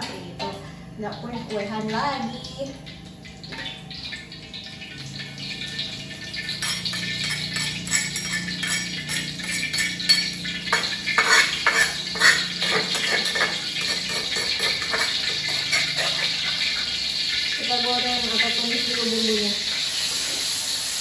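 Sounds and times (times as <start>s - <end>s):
low steady hum: 0.0s - 19.7s
metal spatula scraping cookware: 5.2s - 17.3s.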